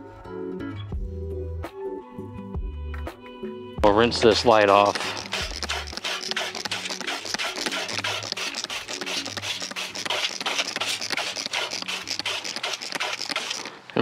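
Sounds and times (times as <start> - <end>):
music with steady beat and bass: 0.8 - 4.5
scratchy rubbing sounds: 4.2 - 14.0.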